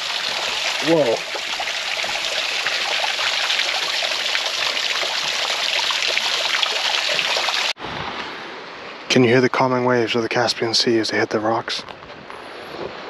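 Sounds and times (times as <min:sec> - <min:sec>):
stream trickling over rocks: 0:00.0 - 0:07.8.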